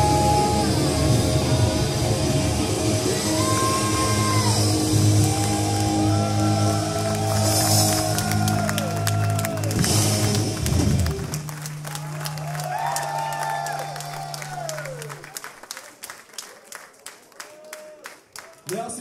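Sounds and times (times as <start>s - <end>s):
heavy metal band playing live: 0.0s - 11.3s.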